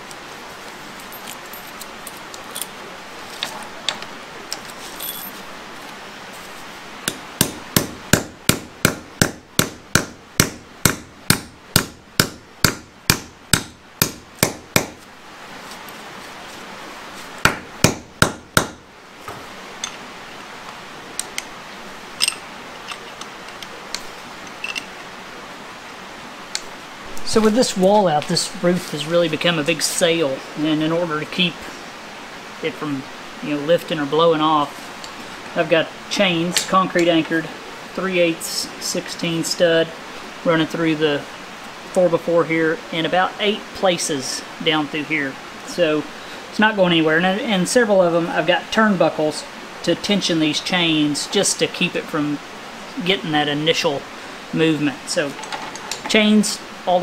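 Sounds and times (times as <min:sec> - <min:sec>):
chain and tools clinking: 0:01.0 - 0:02.8, 0:04.8 - 0:05.4, 0:22.2 - 0:23.2, 0:24.4 - 0:24.9
hammer blows on metal anchor: 0:07.1 - 0:15.0.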